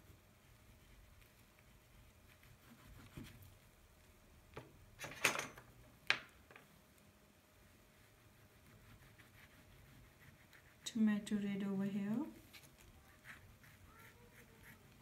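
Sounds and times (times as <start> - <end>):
pastel rubbing on paper: 0.5 - 3.6, 7.6 - 10.9, 12.3 - 15.0.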